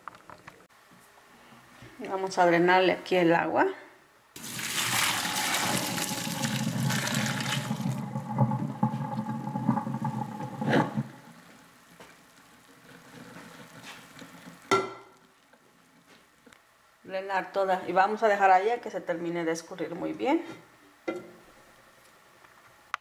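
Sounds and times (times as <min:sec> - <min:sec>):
water pouring into metal sink: 0:04.4 - 0:11.7
faint draining water: 0:04.4 - 0:14.7.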